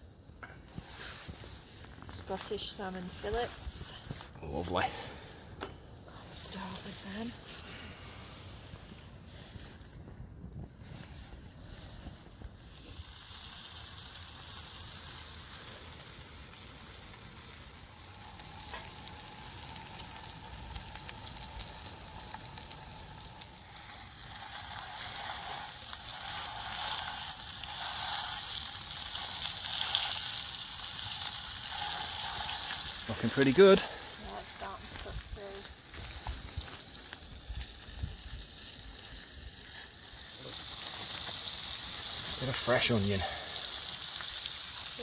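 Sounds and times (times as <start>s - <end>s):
fish sizzling in a frying pan: 0.8s - 3.9s, 6.3s - 9.9s, 10.8s - 45.0s
utensils scraping in a pan: 23.8s - 33.6s.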